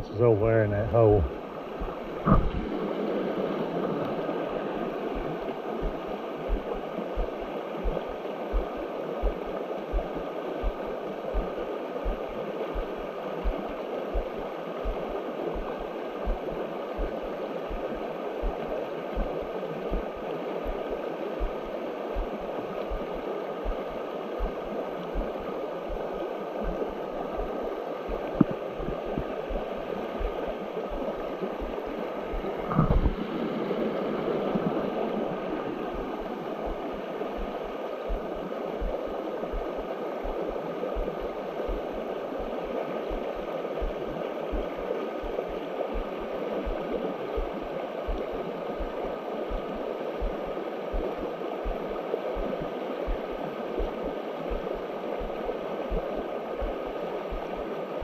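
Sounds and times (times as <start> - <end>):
creek water running: 0.0 - 58.0
low thumps: 1.2 - 2.7, 32.6 - 33.2.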